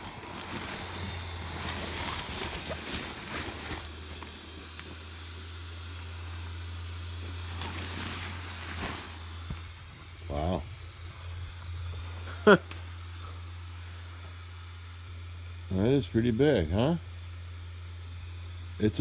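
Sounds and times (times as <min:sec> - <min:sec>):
fabric rustling and crinkling: 0:00.0 - 0:05.1, 0:07.2 - 0:09.7
blower fan humming: 0:00.0 - 0:19.0.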